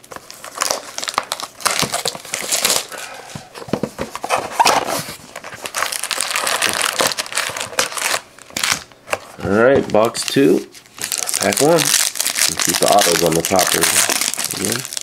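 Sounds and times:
foil wrappers crinkling: 0:00.0 - 0:03.2, 0:04.3 - 0:09.0, 0:09.9 - 0:15.0
cardboard clicks and knocks: 0:03.5 - 0:04.9.

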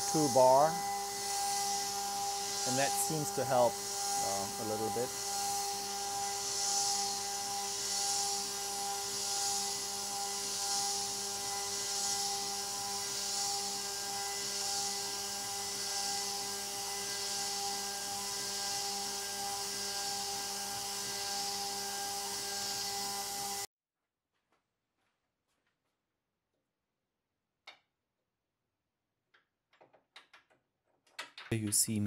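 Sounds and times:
coolant mist hissing: 0:00.0 - 0:20.1
router spindle whining: 0:00.0 - 0:23.7.

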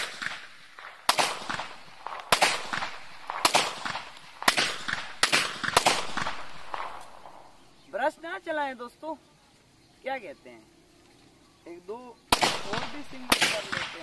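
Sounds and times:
pistol shots with echo: 0:00.0 - 0:07.6, 0:12.3 - 0:14.0.

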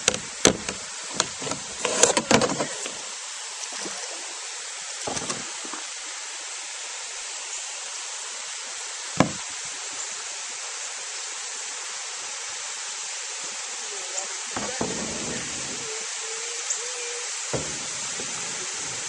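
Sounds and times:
water rushing from waterfall: 0:00.0 - 0:19.0
sharp knocks: 0:09.2 - 0:09.4, 0:14.6 - 0:15.9, 0:17.5 - 0:18.4.

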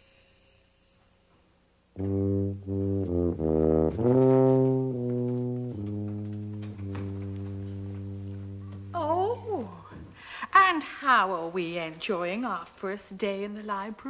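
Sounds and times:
low brass instrument phrase: 0:02.0 - 0:09.8.

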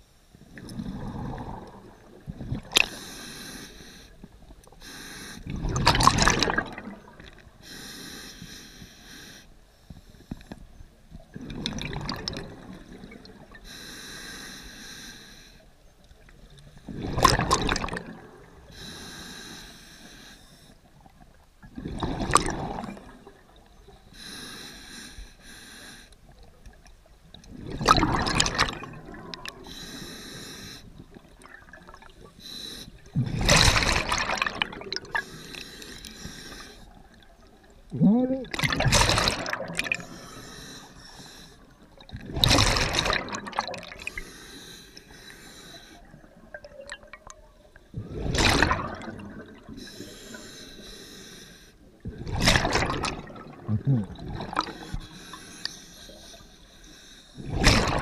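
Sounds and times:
hissing regulator inhale: 0:29.6 - 0:31.0, 0:35.2 - 0:37.0, 0:40.0 - 0:41.8, 0:44.1 - 0:46.1, 0:49.8 - 0:51.8, 0:54.8 - 0:57.4.

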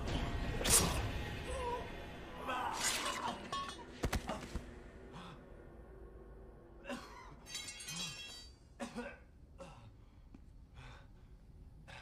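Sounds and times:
glassy tinkling: 0:07.4 - 0:08.6.

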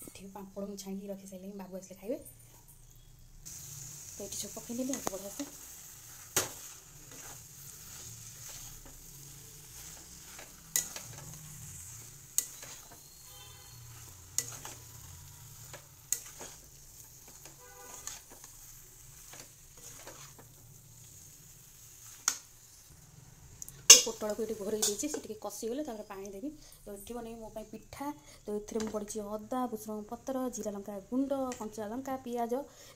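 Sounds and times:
frying sizzle: 0:02.5 - 0:32.9
spatula stirring thick curry: 0:03.5 - 0:22.9.

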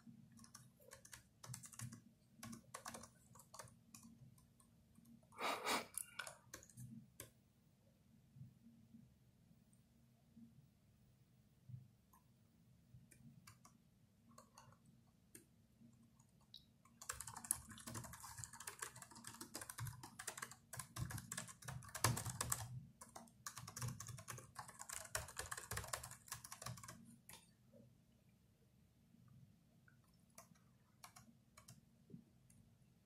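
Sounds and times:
laptop keyboard typing: 0:00.0 - 0:05.3, 0:05.9 - 0:07.4, 0:13.0 - 0:27.6, 0:29.9 - 0:31.9.

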